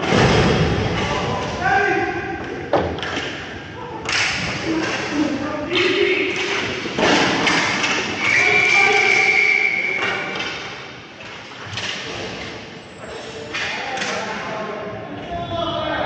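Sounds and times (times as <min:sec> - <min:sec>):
puck and sticks knocking boards: 0:02.4 - 0:08.9
referee's whistle blast: 0:08.2 - 0:10.2.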